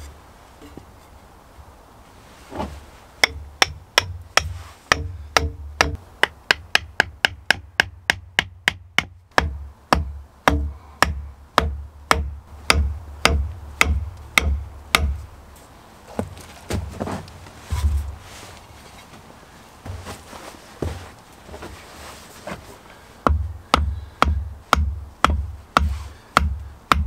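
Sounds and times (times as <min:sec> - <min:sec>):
hatchet knocking wooden pegs: 0:03.2 - 0:15.2, 0:23.2 - 0:27.0.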